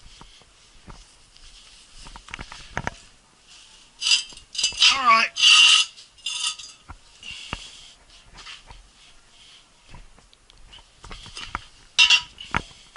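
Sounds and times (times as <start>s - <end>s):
metallic clattering and scraping: 1.9s - 7.6s, 10.7s - 12.9s.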